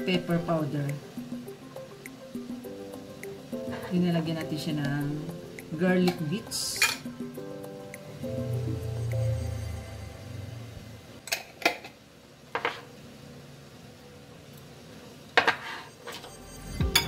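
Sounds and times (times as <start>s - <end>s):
background music: 0.0s - 11.2s, 16.2s - 17.0s.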